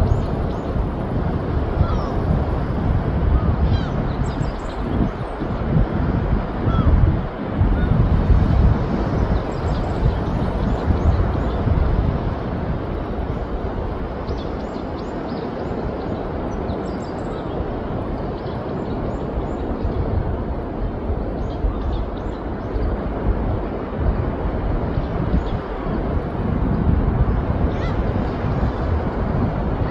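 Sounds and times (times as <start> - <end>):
wind on microphone: 0.0 - 29.9
surf rushing: 22.9 - 29.9.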